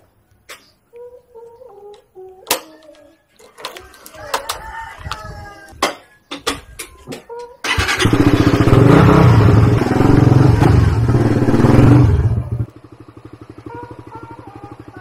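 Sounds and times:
motorcycle engine: 7.6s - 15.0s.

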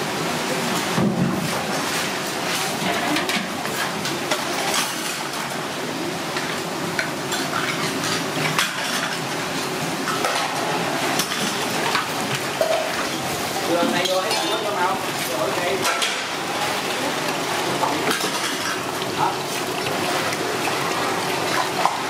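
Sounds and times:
tap water running into basin: 6.3s - 22.0s
water splashing and pouring: 10.0s - 22.0s
metal skimmer scraping pot: 11.2s - 22.0s.

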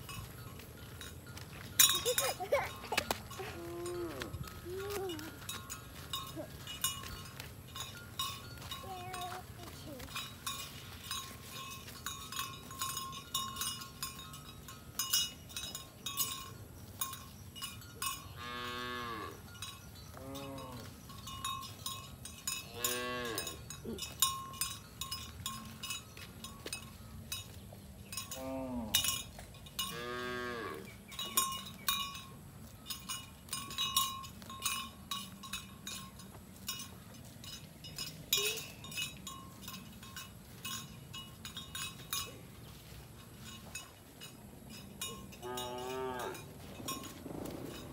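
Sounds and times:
cow bells clinking: 0.0s - 47.9s
cattle mooing: 30.0s - 30.8s, 45.4s - 46.4s.

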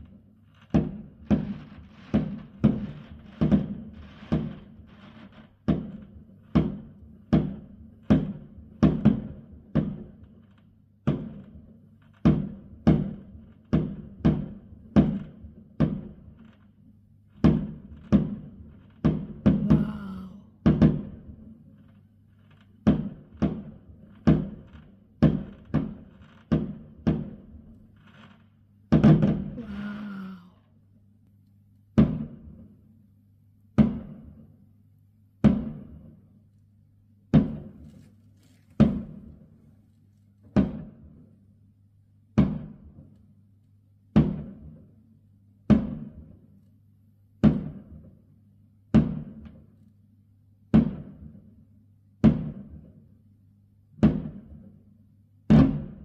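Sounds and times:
firework shells bursting: 0.0s - 14.0s, 20.6s - 29.7s.

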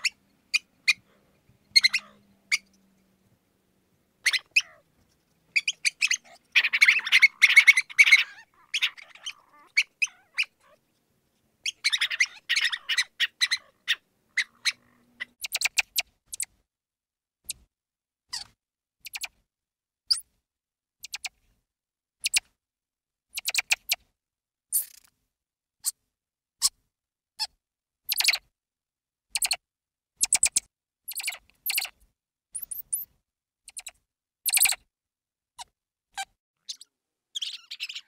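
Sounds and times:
mouse squeaking: 0.0s - 1.0s, 1.7s - 2.8s, 4.2s - 10.8s, 11.6s - 16.6s, 17.4s - 17.7s, 18.3s - 19.4s, 21.0s - 21.4s, 22.2s - 22.5s, 23.3s - 24.1s, 24.7s - 25.1s, 27.4s - 28.5s, 29.3s - 29.6s, 30.2s - 32.0s, 32.6s - 34.9s, 35.6s - 38.0s.

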